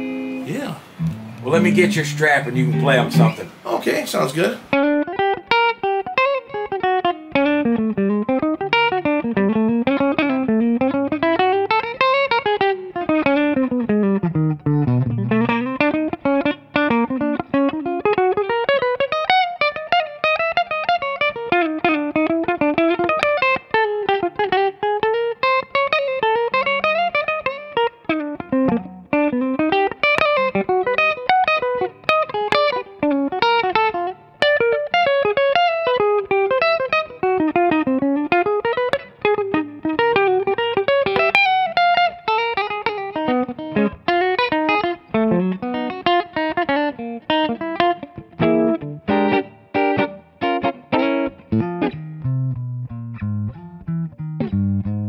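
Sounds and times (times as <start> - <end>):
electric guitar lead with string bends: 0.0 - 55.0.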